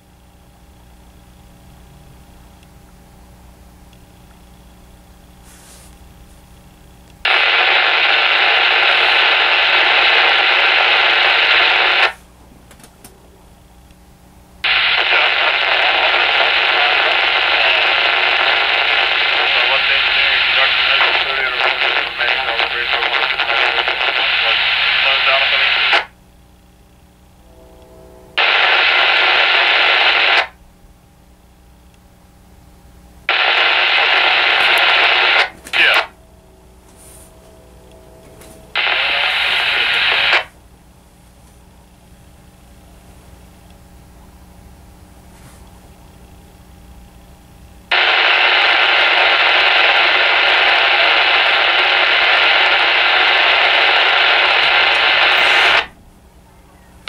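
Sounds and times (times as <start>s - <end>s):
radio static hiss: 4.6s - 12.3s, 14.6s - 30.6s, 33.2s - 44.0s, 47.8s - 56.0s.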